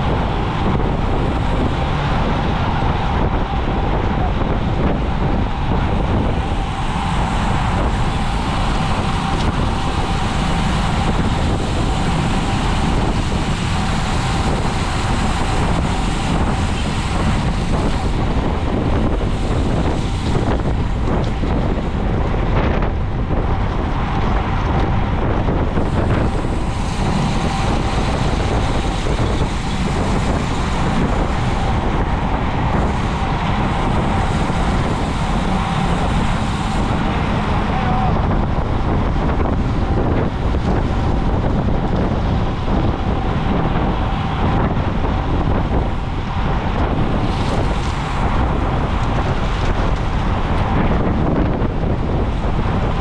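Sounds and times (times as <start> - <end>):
wind rushing over microphone: 0.0 - 53.0.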